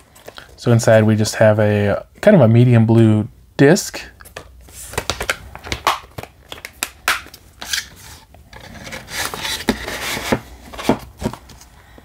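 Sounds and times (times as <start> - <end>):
plastic rubbing and sliding: 7.6 - 11.7.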